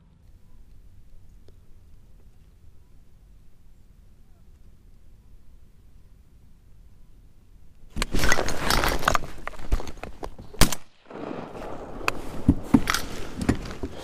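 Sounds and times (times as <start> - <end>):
clothing and gear rustling: 7.9 - 10.5, 11.5 - 14.0
shotgun shot crack: 10.6 - 12.4.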